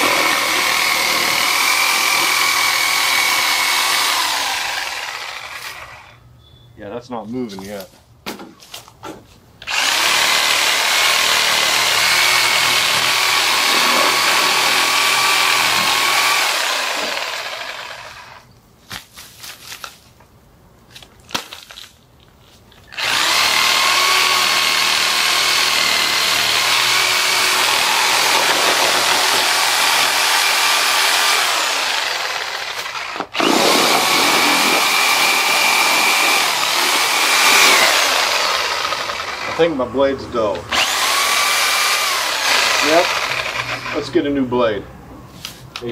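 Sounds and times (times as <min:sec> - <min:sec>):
reciprocating saw cutting roots: 0:00.0 - 0:06.2, 0:09.6 - 0:19.1, 0:22.9 - 0:44.5
rustling: 0:18.8 - 0:23.0.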